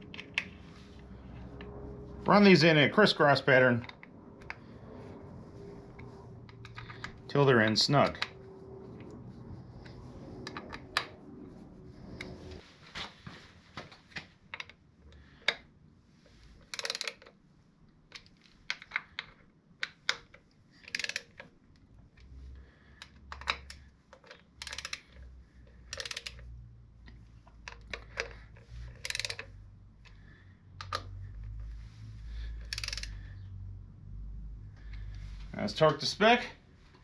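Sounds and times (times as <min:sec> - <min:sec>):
hand ratchet clicking: 0:16.6 - 0:17.3, 0:19.8 - 0:21.5, 0:23.0 - 0:26.5, 0:27.6 - 0:29.6, 0:32.5 - 0:33.4.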